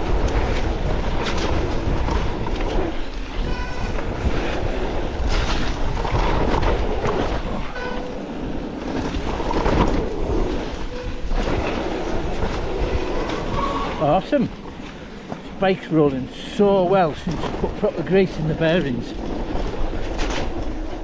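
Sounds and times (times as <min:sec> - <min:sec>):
wind rushing on microphone: 0:00.0 - 0:16.0
bike rattling over bumps: 0:00.0 - 0:21.0.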